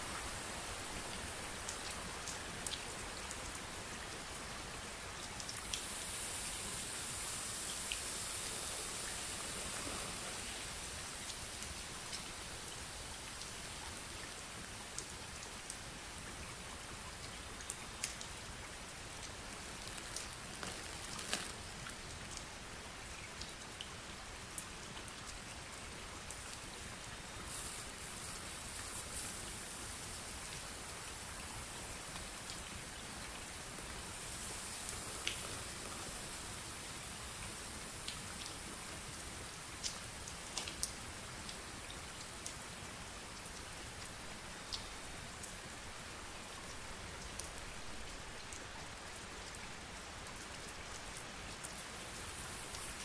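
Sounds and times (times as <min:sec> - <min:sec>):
water dripping onto plastic film: 0:19.1 - 0:22.5, 0:26.3 - 0:41.6.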